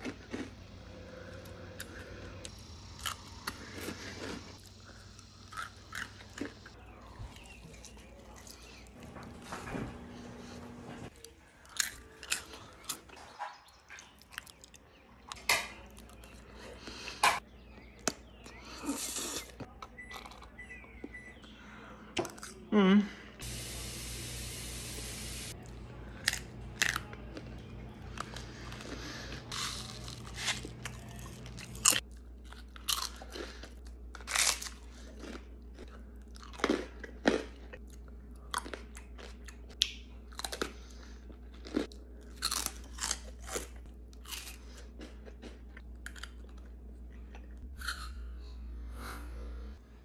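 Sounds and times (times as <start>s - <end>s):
crunching and chewing food: 0.0s - 22.7s, 25.5s - 48.5s
steady hiss: 23.4s - 25.6s.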